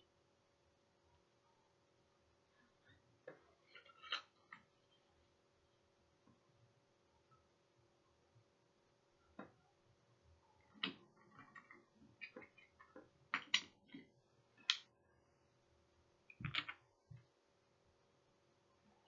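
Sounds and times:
faint steady hum: 0.0 - 19.0
wooden pieces clicking and knocking: 10.7 - 14.9, 16.3 - 16.9.

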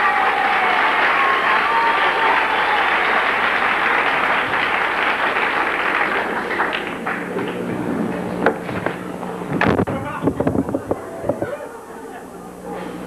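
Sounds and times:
audience applauding: 0.0 - 9.0.

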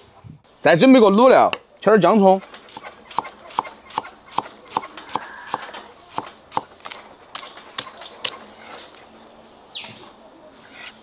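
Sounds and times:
cleaver chopping on wooden block: 2.7 - 8.4.

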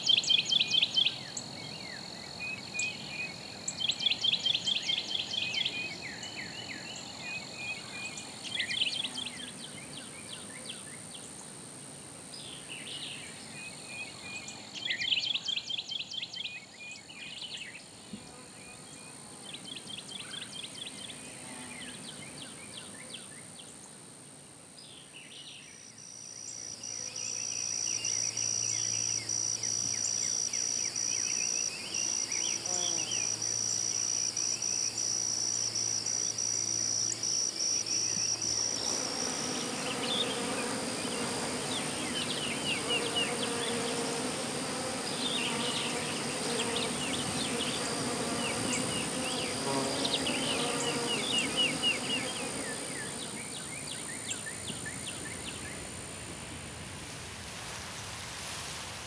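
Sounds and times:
insects buzzing with high whine: 0.0 - 59.0.

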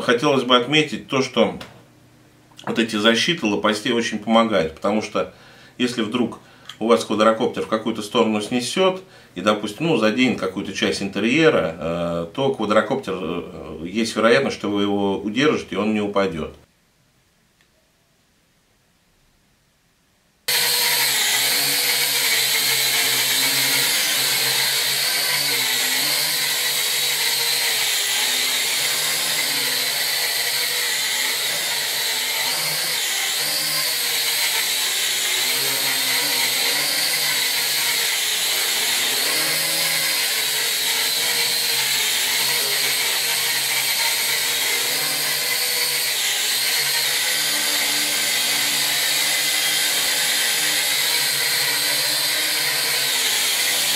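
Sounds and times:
toy drone motors whining: 20.5 - 53.9.

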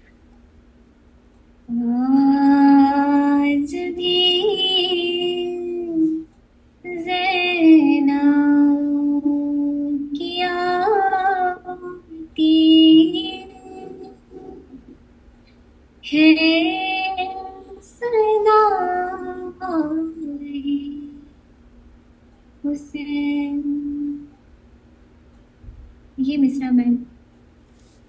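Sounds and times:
woman chanting: 1.7 - 6.3, 6.9 - 14.8.

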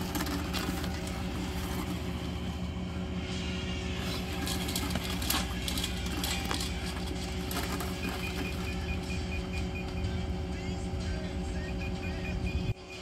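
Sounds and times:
probe tape clicking and rattling: 0.0 - 2.5, 4.0 - 10.0
engine running: 0.0 - 13.0.

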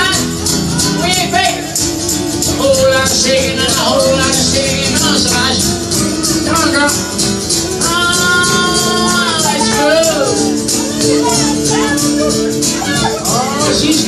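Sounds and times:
acoustic guitar: 0.0 - 14.0
person singing: 0.0 - 14.0
tambourine shaken: 0.0 - 14.0.

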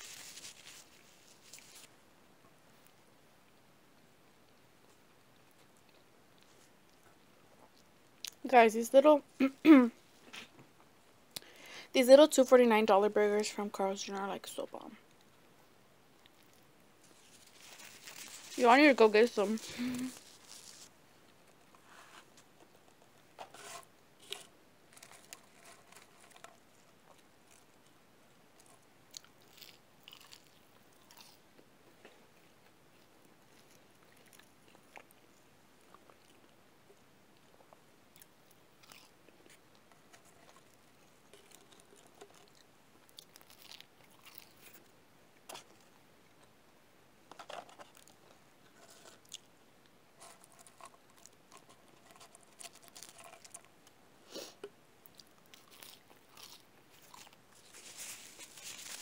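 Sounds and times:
person chewing and biting food: 28.7 - 31.4, 37.5 - 39.7, 40.4 - 44.8, 55.1 - 57.4.

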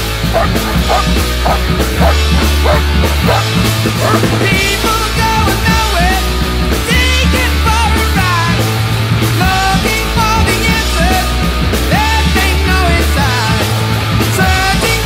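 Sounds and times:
held bass notes: 0.0 - 15.0
loud rock music: 0.0 - 15.0
person singing: 4.0 - 15.0.

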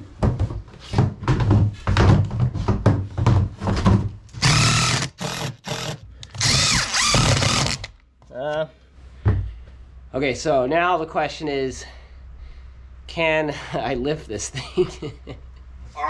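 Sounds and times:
power drill driving screws: 4.4 - 7.9.

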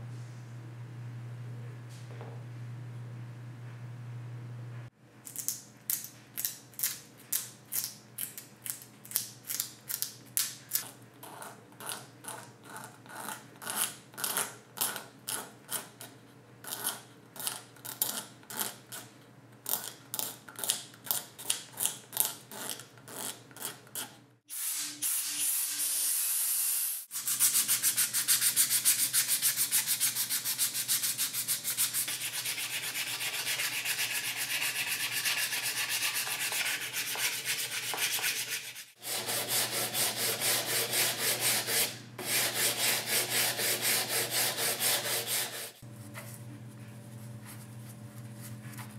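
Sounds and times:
sanding wood: 27.1 - 45.8.

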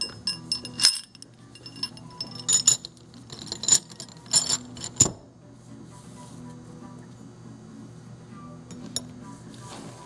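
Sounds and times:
steel bearing parts clinking: 0.0 - 5.2.

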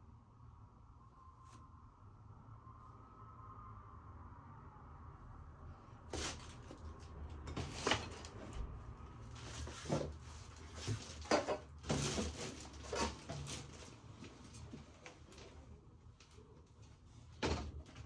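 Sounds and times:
laundry tumbling in drum: 9.4 - 14.0.

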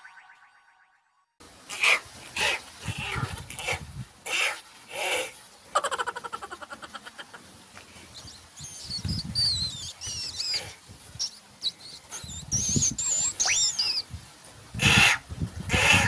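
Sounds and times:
cartoon mouse squeaks: 12.3 - 14.0.

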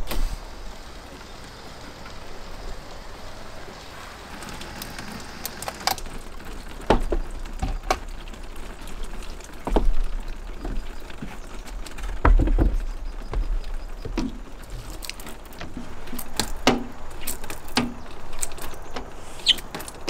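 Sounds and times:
water spraying on window glass: 0.0 - 20.0
heavy thumps: 9.6 - 18.1.

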